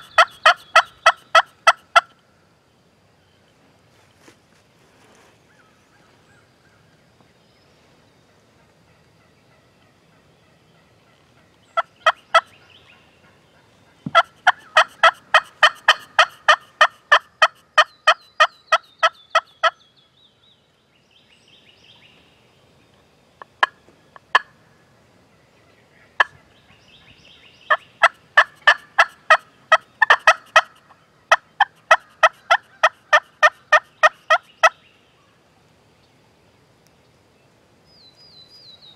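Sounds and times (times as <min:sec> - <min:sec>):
wild turkey yelping: 0:00.0 - 0:02.1, 0:08.6 - 0:19.8, 0:27.7 - 0:34.8.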